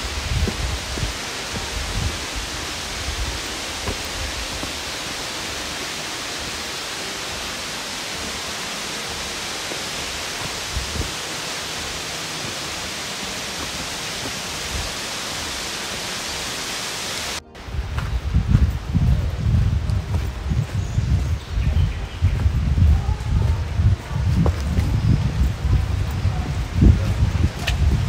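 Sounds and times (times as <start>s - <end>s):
faint low thumps: 0.0s - 5.7s, 17.4s - 28.0s
waterfall rushing: 0.0s - 28.0s.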